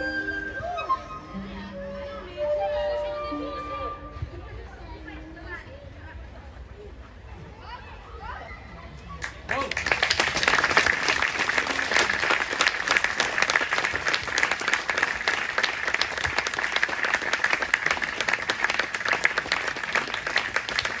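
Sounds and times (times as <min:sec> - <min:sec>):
audience applauding: 0:09.2 - 0:21.0.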